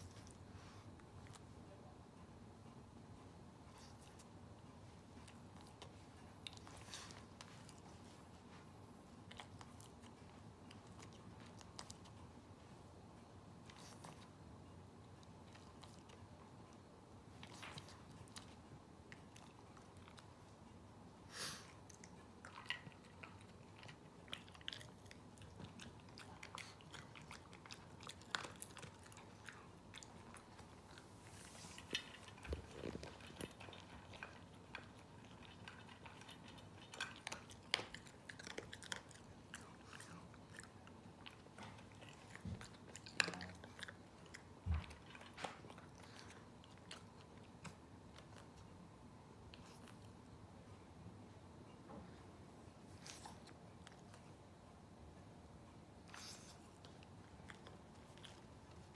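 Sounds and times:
dog crunching dry kibble: 0:21.9 - 0:48.6.

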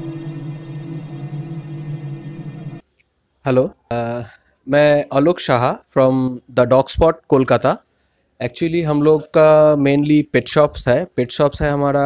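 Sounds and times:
ambient drone music: 0:00.0 - 0:02.8.

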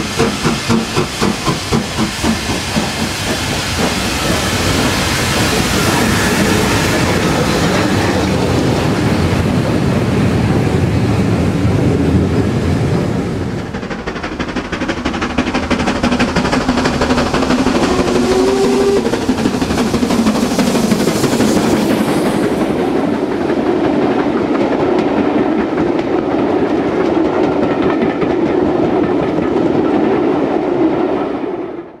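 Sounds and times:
steam locomotive hissing: 0:00.0 - 0:24.6
train wheels clattering over rails: 0:00.0 - 0:31.6.

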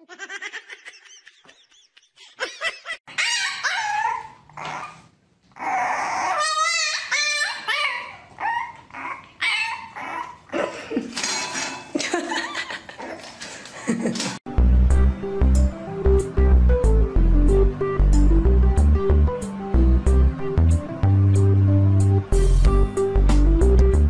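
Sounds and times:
dog whining and yipping: 0:03.1 - 0:10.5.

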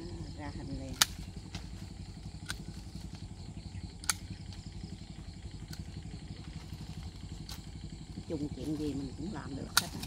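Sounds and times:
steady low rumble: 0:00.0 - 0:10.0
pruning shears snipping branches: 0:00.6 - 0:04.9, 0:05.6 - 0:07.7, 0:08.5 - 0:10.0.

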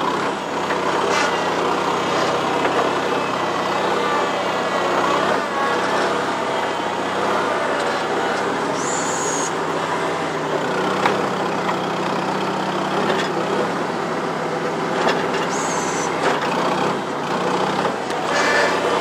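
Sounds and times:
loader engine running: 0:00.0 - 0:19.0
short high squeal: 0:08.8 - 0:09.6, 0:15.5 - 0:16.2, 0:18.2 - 0:18.9.

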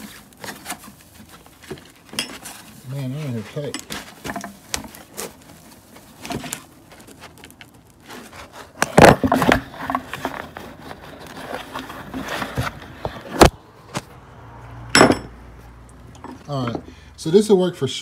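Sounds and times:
hands rummaging in cardboard box: 0:00.0 - 0:13.5.

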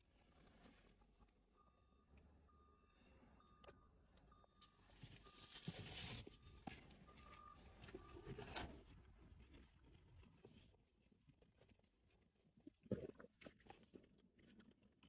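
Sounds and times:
dashboard warning beeps: 0:01.5 - 0:08.6.

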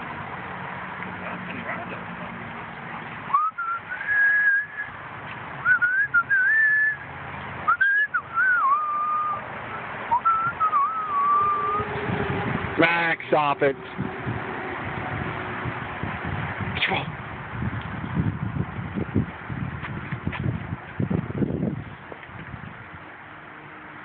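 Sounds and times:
person whistling: 0:03.3 - 0:04.9, 0:05.6 - 0:07.0, 0:07.7 - 0:09.4, 0:10.1 - 0:11.8.

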